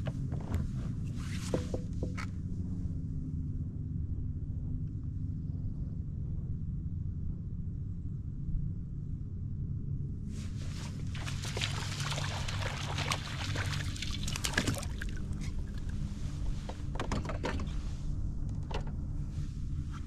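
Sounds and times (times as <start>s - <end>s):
steady low hum: 0.0s - 20.0s
water splashing against hull: 10.4s - 17.8s.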